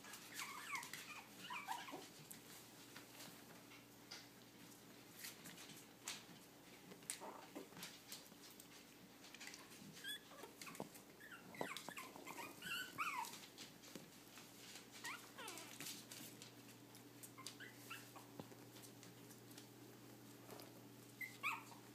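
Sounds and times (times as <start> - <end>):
puppies whimpering and yipping: 0.0 - 2.2, 9.6 - 13.7, 14.7 - 16.2, 17.1 - 18.6, 21.1 - 21.9.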